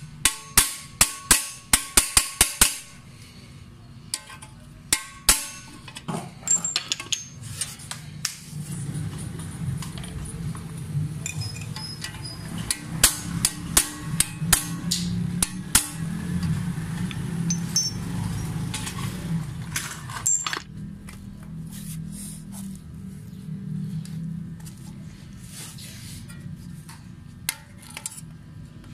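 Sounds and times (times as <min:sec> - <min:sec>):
hammer tapping metal punch: 0:00.0 - 0:03.0, 0:04.2 - 0:07.4, 0:11.3 - 0:16.5.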